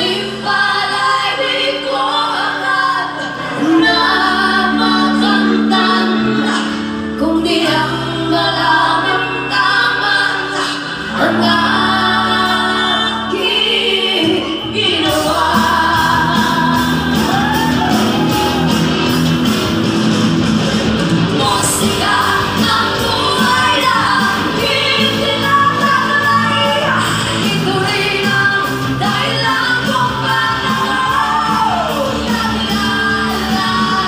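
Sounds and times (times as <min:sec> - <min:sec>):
women singing: 0:00.0 - 0:18.7, 0:21.4 - 0:34.0
electric guitars: 0:00.0 - 0:34.0
keyboard: 0:00.0 - 0:34.0
steady drum beat: 0:15.1 - 0:34.0.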